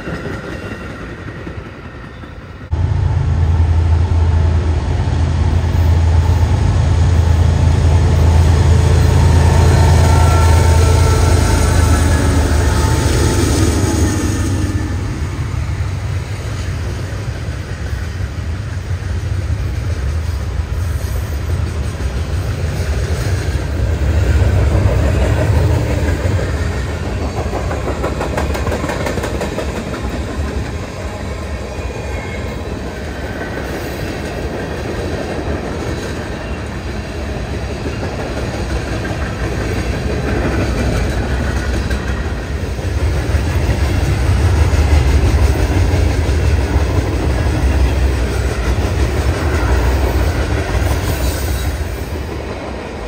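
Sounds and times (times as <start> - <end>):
freight train rumbling past: 0.0 - 53.0
wheels clacking over rail joints: 23.4 - 30.9.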